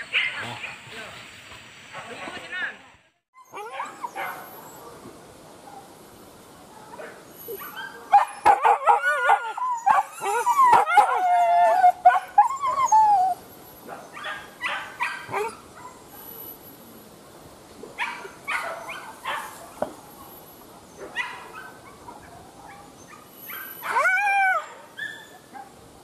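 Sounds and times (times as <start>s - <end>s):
dogs yelping and whining: 3.4s - 4.8s, 7.4s - 16.6s, 18.0s - 25.6s
dogs barking: 3.5s - 4.9s, 6.8s - 12.5s, 13.9s - 16.1s, 18.0s - 25.8s
dog howling: 8.4s - 13.4s, 23.8s - 25.3s.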